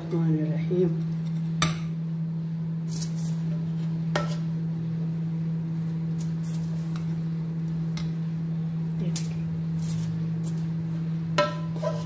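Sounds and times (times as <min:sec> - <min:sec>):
steady low hum: 0:00.0 - 0:12.0
metal spoon scraping a pot: 0:11.4 - 0:12.0.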